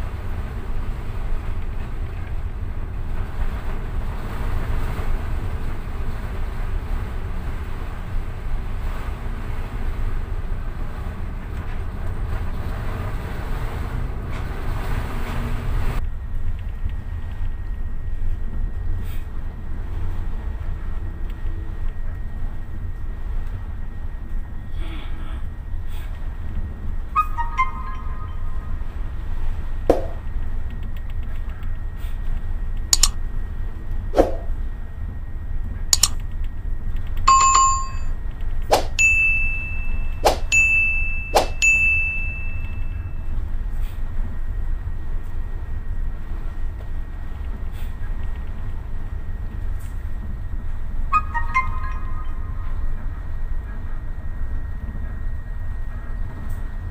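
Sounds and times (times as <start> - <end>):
mouse-click sound effects: 33.0 - 33.2, 36.0 - 36.2.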